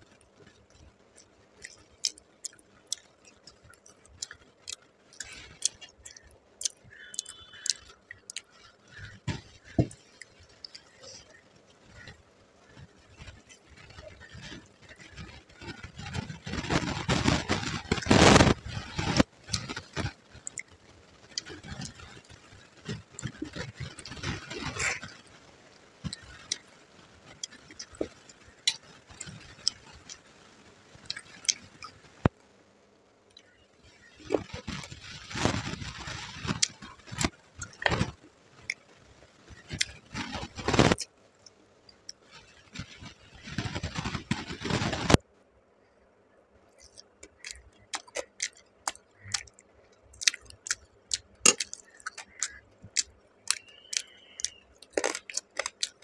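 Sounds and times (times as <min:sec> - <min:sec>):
wet chewing and lip-smacking: 0:00.1 - 0:25.2, 0:46.8 - 0:56.0.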